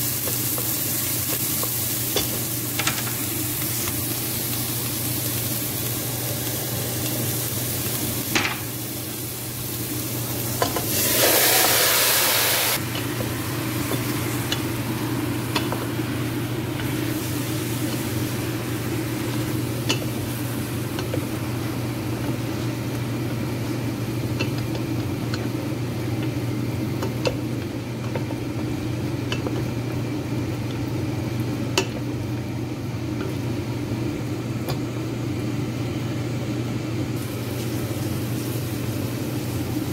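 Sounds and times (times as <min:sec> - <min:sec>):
onion and garlic sizzling in oil: 0:00.0 - 0:35.1, 0:37.1 - 0:39.9
burst of sizzling: 0:10.9 - 0:12.8
steady low hum: 0:12.8 - 0:39.9.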